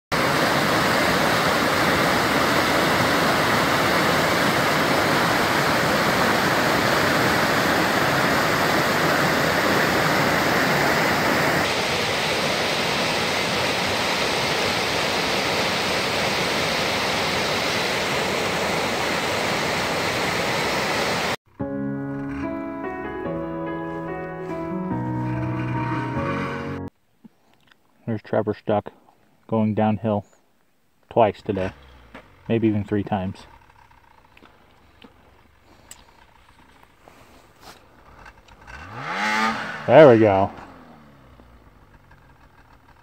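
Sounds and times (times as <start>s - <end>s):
creek rushing over rocks: 0.1s - 21.4s.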